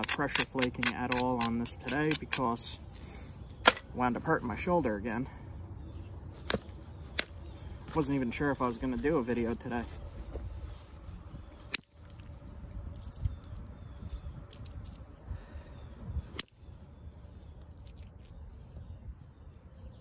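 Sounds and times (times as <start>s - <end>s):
sharp clicks: 0.0s - 2.6s
small clinks of tools: 0.0s - 2.6s.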